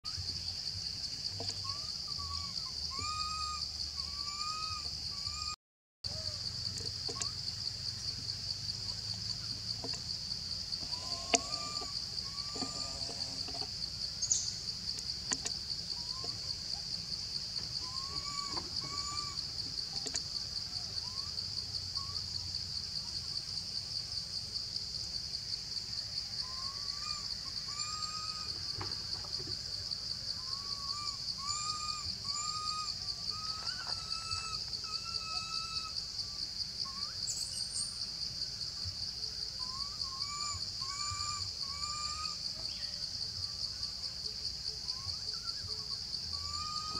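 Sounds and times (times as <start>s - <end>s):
insect chorus buzzing: 0.1s - 46.9s
whistled calls: 1.4s - 5.6s, 17.6s - 20.2s, 30.4s - 37.9s, 39.6s - 43.0s, 44.8s - 46.9s.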